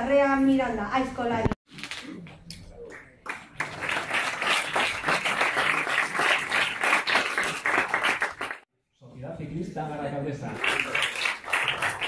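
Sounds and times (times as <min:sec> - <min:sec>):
audience applauding: 0:02.9 - 0:08.6, 0:10.4 - 0:12.0.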